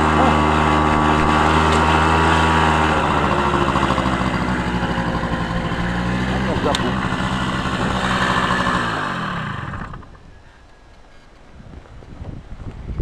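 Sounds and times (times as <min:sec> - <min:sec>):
vehicle engine running: 0:00.0 - 0:10.2.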